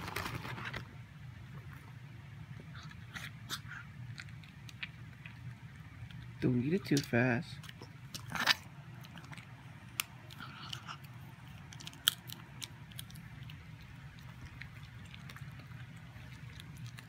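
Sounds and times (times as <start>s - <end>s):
dog crunching a hard treat: 2.7s - 17.0s.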